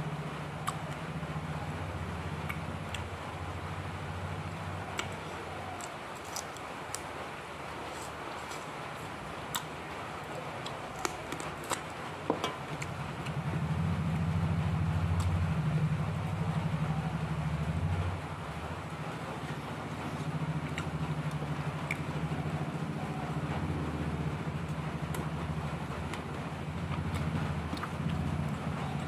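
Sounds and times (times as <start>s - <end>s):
pulsing motor rumble: 0.0s - 29.0s
steady low hum: 0.0s - 29.0s
person chewing food: 4.9s - 12.9s, 26.9s - 28.6s.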